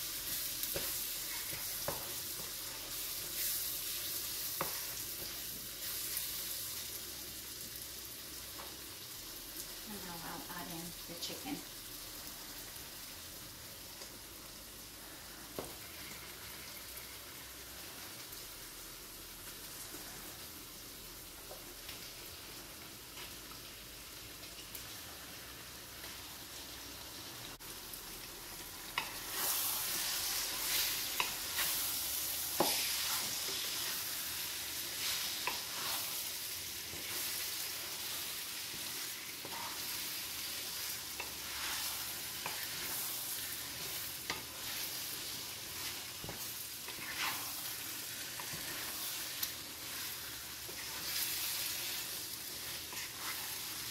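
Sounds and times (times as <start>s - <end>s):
wooden spoon stirring in pan: 0.0s - 7.7s, 28.2s - 53.9s
food sizzling in a pan: 0.0s - 53.9s.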